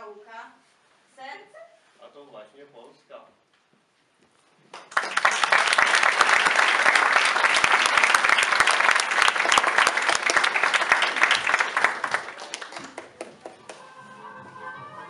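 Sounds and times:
audience applauding: 4.7s - 13.9s.

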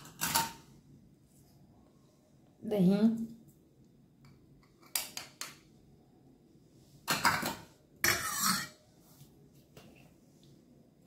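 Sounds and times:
metal spoon scraping steel bowl: 8.0s - 8.8s.

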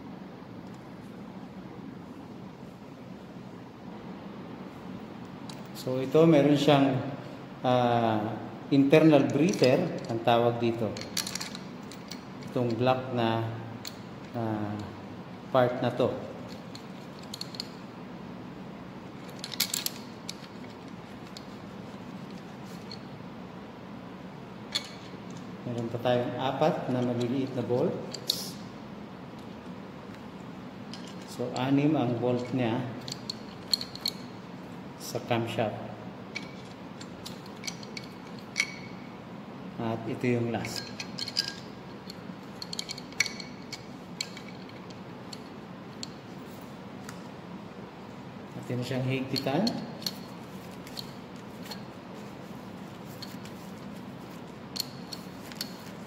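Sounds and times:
low background hum: 0.0s - 56.0s
metallic clicks and clinks: 10.9s - 12.7s, 16.4s - 17.8s, 19.2s - 21.6s, 24.7s - 25.9s, 32.4s - 34.4s, 36.3s - 39.1s, 40.6s - 46.3s, 49.3s - 52.0s, 54.7s - 56.0s.

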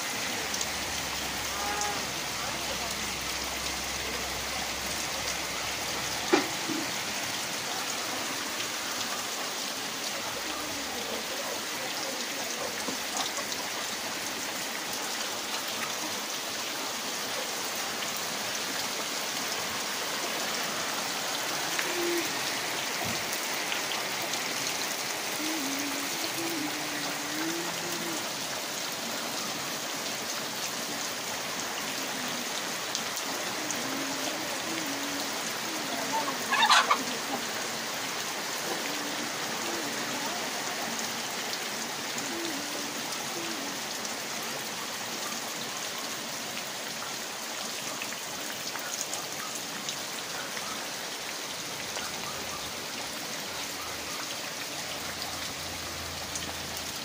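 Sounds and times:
heavy rain on road and roofs: 0.0s - 57.0s.

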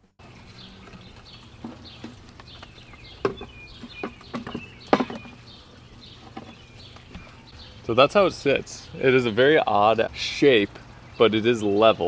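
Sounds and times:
small birds chirping: 0.2s - 12.0s
wooden knocks and clunks: 1.6s - 5.4s, 6.2s - 7.3s.

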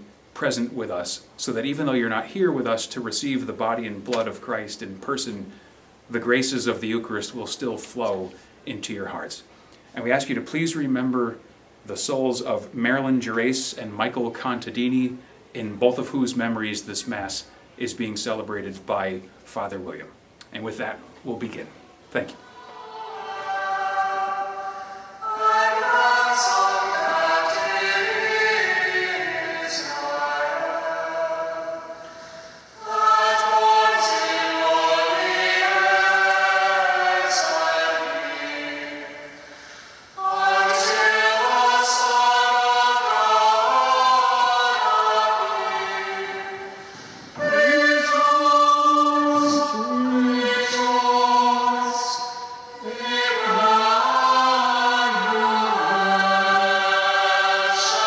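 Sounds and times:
choir singing a hymn: 22.4s - 58.0s.

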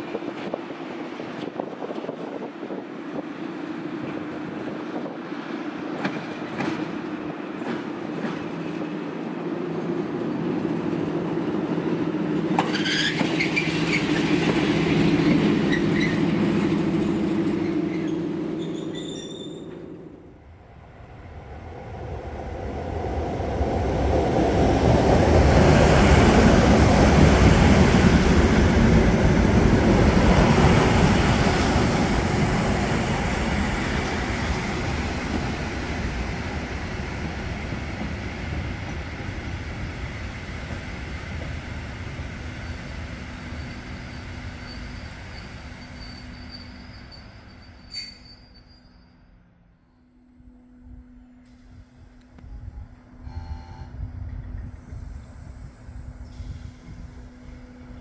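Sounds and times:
train rumble and wheel noise: 0.0s - 58.0s
brief high squeal: 17.6s - 19.8s, 43.5s - 49.4s.

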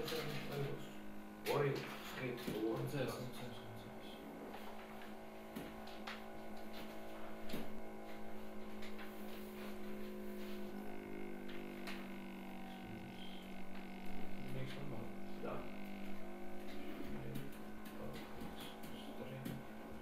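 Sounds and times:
steady electrical hum: 0.0s - 20.0s
faint clicks and taps: 16.0s - 19.7s.

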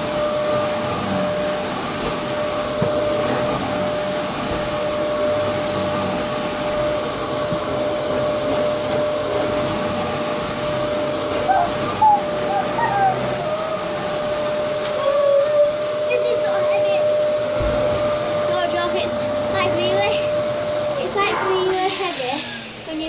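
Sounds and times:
vacuum cleaner motor whine: 0.0s - 23.0s.

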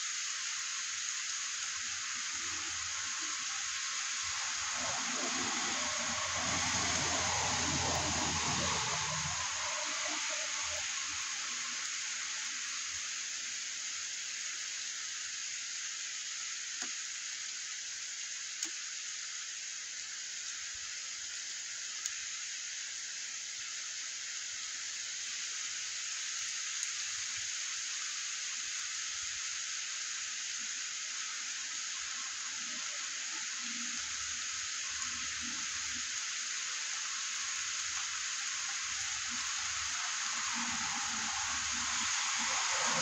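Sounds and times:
steady rain on wet street: 0.0s - 16.9s, 19.7s - 43.0s
faint ticks: 18.6s - 18.8s.

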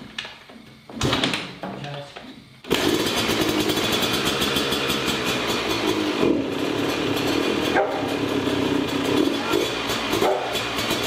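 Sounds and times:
dirt bike engine running: 2.7s - 11.0s.

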